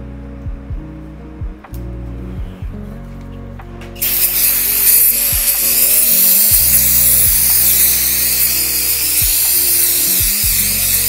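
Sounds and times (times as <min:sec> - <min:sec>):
background music: 0:00.0 - 0:11.0
high-pitched power tool whirring: 0:04.0 - 0:11.0.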